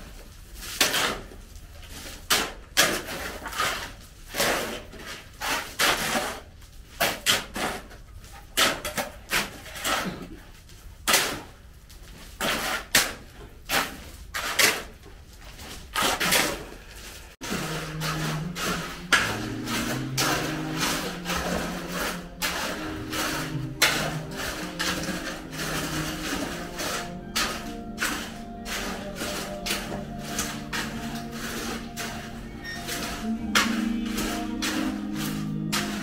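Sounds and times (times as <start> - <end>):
hoes scraping gravelly soil: 12.2 - 36.0.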